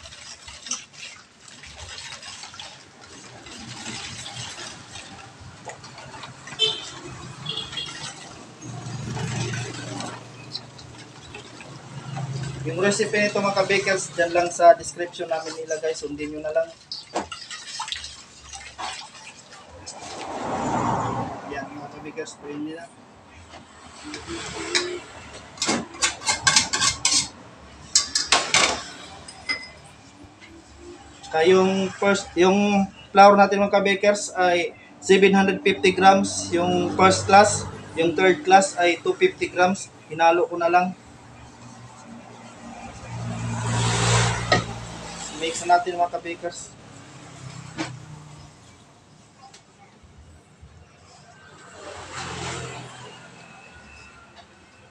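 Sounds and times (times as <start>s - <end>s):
whisk sloshing liquid in bowl: 0.0s - 20.3s.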